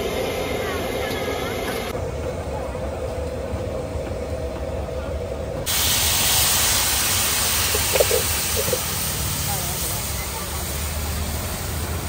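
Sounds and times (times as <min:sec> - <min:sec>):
food sizzling on a griddle: 0:05.7 - 0:12.0.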